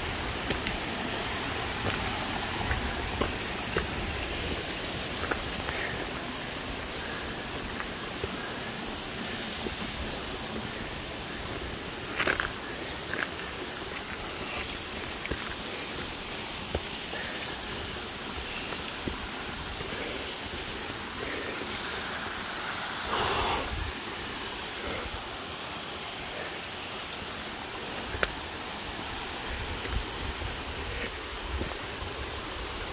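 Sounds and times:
mountain creek rushing: 0:00.0 - 0:32.9
footsteps on rock: 0:01.8 - 0:04.2, 0:12.1 - 0:17.6.

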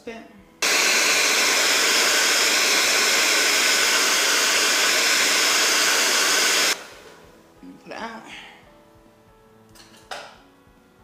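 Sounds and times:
hair dryer blowing air: 0:00.6 - 0:07.2.

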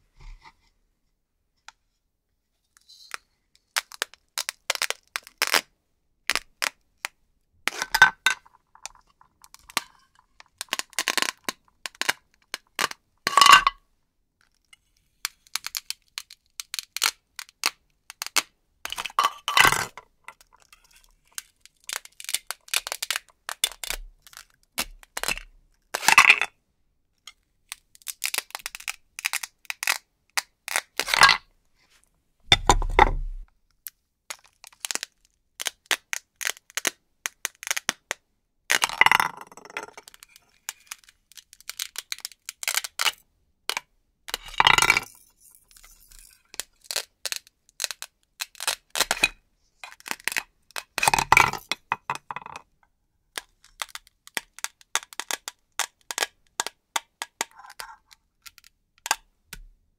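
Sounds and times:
plastic pieces clicking: 0:15.2 - 0:20.7, 0:27.7 - 0:30.0, 0:34.3 - 0:49.3, 0:53.4 - 0:59.2.

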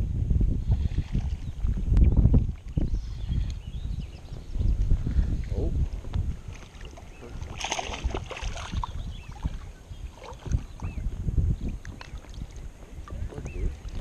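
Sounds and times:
water lapping and sloshing: 0:00.6 - 0:02.8, 0:06.3 - 0:14.0
fish splashing: 0:06.6 - 0:10.9.

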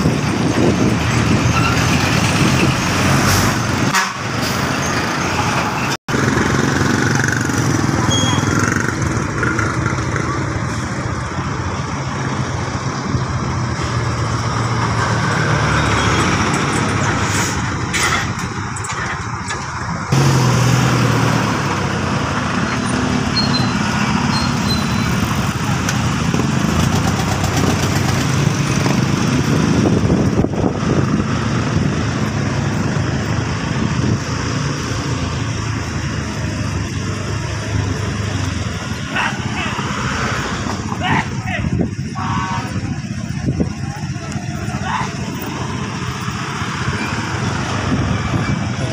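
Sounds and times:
passing traffic: 0:00.0 - 0:48.9
road and wind noise: 0:00.0 - 0:48.9.

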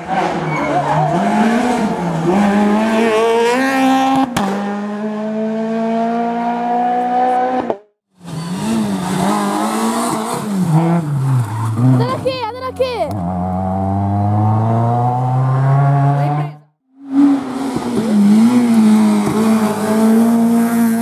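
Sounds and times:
rally car engine at full throttle: 0:00.0 - 0:21.0
rally car passing close: 0:13.1 - 0:21.0.

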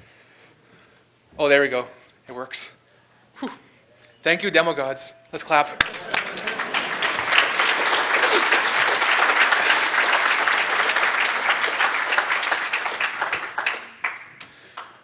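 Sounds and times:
audience applauding: 0:05.7 - 0:15.0.

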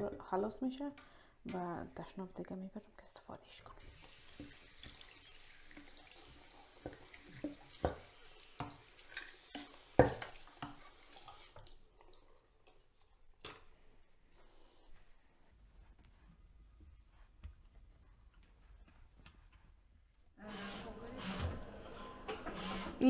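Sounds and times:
tap running into sink: 0:04.0 - 0:10.8.

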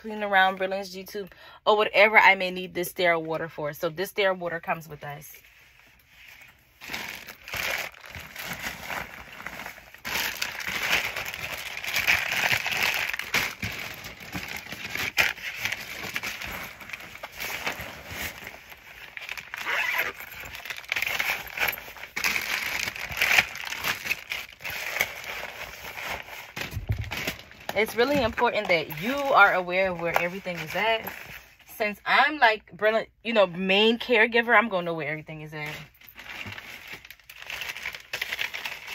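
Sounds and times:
fabric bag shuffling: 0:05.5 - 0:31.4
plastic wrappers crinkling: 0:05.8 - 0:31.6, 0:35.6 - 0:38.9.

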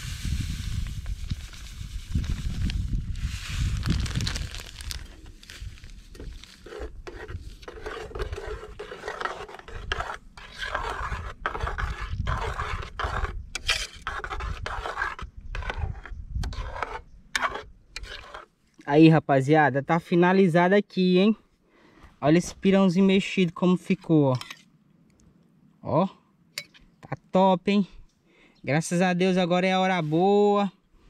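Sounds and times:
spoon scraping and stirring in pot: 0:06.1 - 0:18.8, 0:24.0 - 0:24.7.

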